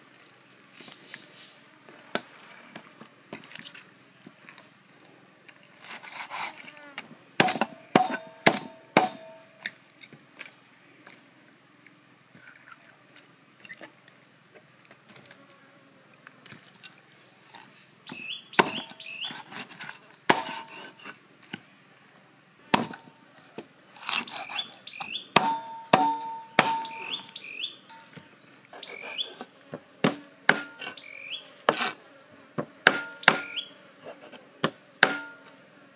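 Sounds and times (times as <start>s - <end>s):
cleaver chopping on wooden block: 7.4s - 9.3s, 18.6s - 19.0s, 22.7s - 23.0s, 25.4s - 27.2s, 30.0s - 31.0s, 32.6s - 33.6s, 34.6s - 35.4s
small bird chirping: 17.2s - 19.3s, 24.2s - 28.2s, 28.8s - 29.4s, 30.9s - 31.5s, 33.2s - 33.8s.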